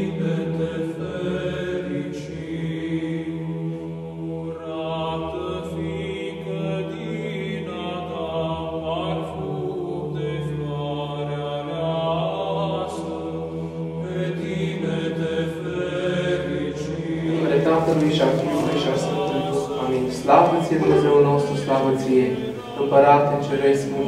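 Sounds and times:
chanted melody: 0:17.2 - 0:24.0.

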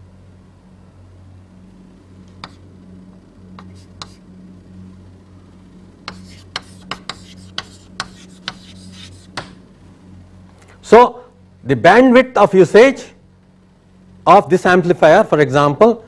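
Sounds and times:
low electrical hum: 0:00.0 - 0:16.0
writing taps and strokes: 0:02.4 - 0:02.6, 0:03.6 - 0:04.2, 0:06.1 - 0:09.6.

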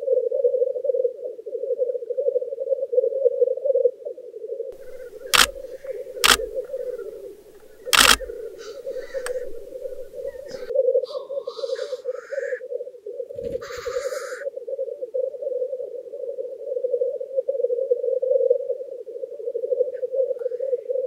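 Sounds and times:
grouse hissing calls: 0:04.8 - 0:12.3.

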